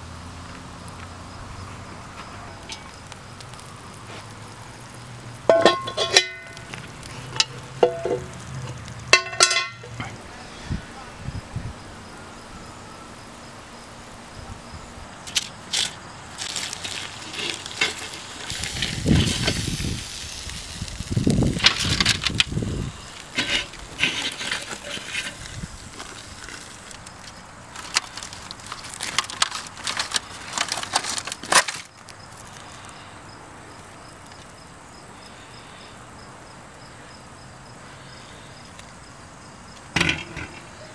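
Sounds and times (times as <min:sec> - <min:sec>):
faint steady hiss: 0:00.0 - 0:40.9
foil pan crinkling: 0:15.3 - 0:32.8.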